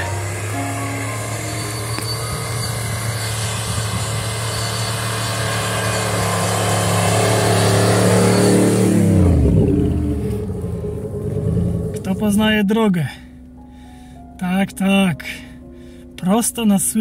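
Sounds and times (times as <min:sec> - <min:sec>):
off-road vehicle engine driving by: 0:00.0 - 0:13.5.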